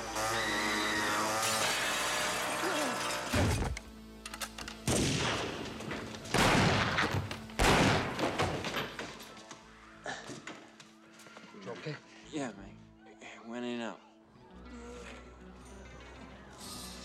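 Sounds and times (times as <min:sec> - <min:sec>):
gunshots: 0:04.8 - 0:08.7.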